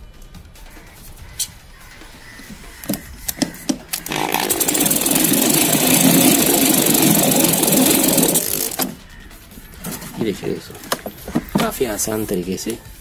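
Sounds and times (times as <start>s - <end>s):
electric drill driving screw: 4.0s - 9.0s.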